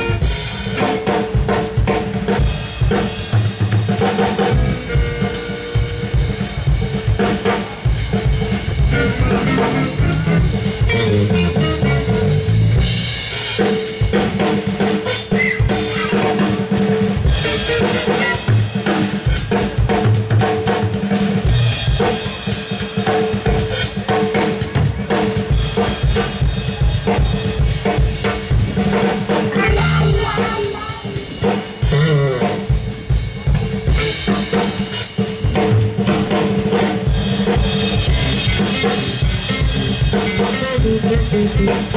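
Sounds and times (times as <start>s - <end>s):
drum kit playing: 0.0s - 41.9s
electric bass line: 4.4s - 7.0s, 8.2s - 13.3s, 29.6s - 31.2s, 37.7s - 41.9s
electric guitar long notes: 8.8s - 13.0s.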